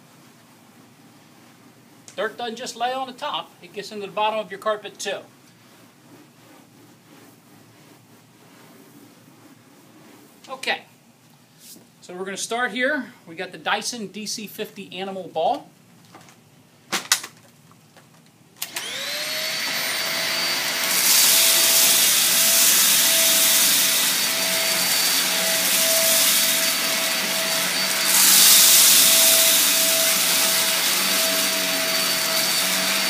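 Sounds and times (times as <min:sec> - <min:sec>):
vacuum cleaner motor whining: 0:18.6 - 0:33.0
suction hiss over carpet: 0:20.9 - 0:33.0.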